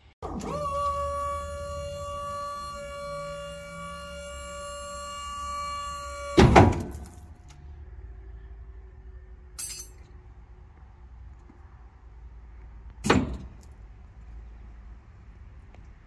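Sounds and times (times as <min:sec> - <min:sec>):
light metallic clink: 0:09.6 - 0:10.1.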